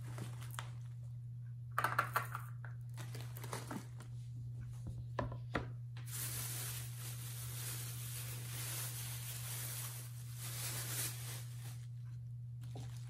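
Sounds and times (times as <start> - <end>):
plastic bag crinkling: 0.0 - 1.0, 2.8 - 4.2, 6.0 - 13.0
steady low hum: 0.0 - 13.0.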